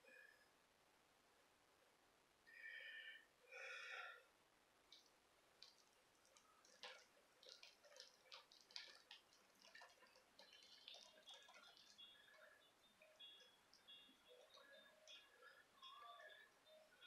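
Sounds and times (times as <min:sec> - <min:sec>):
paint dripping onto plastic sheeting: 0:04.8 - 0:17.0.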